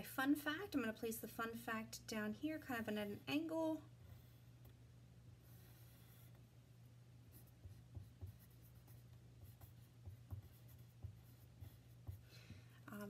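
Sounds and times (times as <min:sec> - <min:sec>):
low steady hum: 0:00.0 - 0:13.0
pencil scratching on paper: 0:05.4 - 0:06.4, 0:07.3 - 0:12.2.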